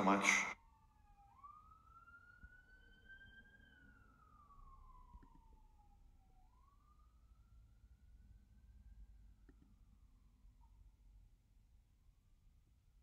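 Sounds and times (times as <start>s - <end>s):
faint siren wailing: 0.0s - 9.4s.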